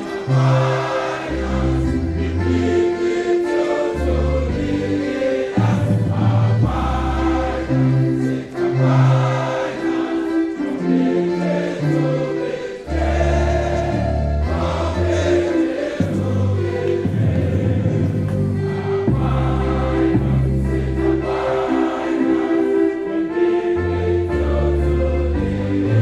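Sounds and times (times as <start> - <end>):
choir singing over music: 0.0 - 26.0.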